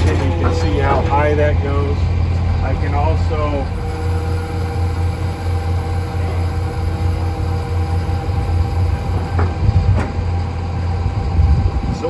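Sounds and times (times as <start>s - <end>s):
tractor engine humming: 0.0s - 12.0s
powered drive whine: 3.0s - 10.9s.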